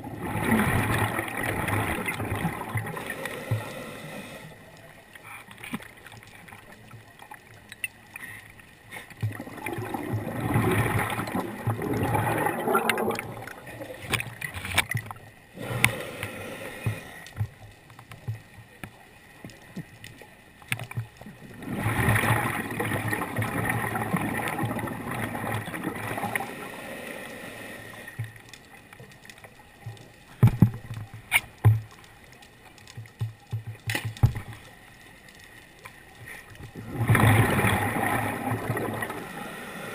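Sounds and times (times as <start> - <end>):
bubbling regulator exhalations: 0.0 - 3.8, 9.2 - 14.2, 36.8 - 39.9
sharp clicks and knocks: 32.8 - 34.7.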